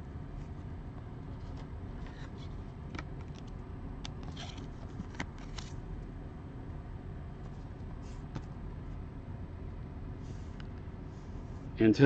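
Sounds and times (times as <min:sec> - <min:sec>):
trading cards rustling and clicking: 0:01.3 - 0:05.8.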